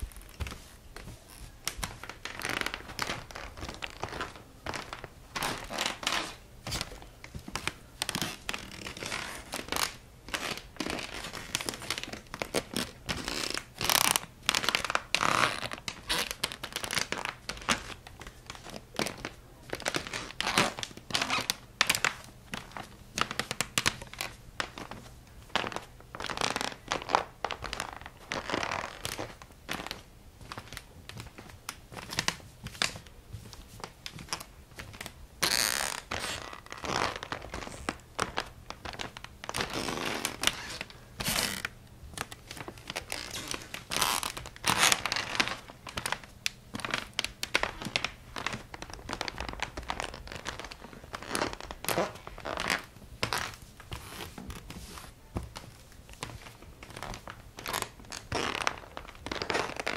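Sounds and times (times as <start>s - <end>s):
wooden floorboards creaking: 0.0s - 11.4s.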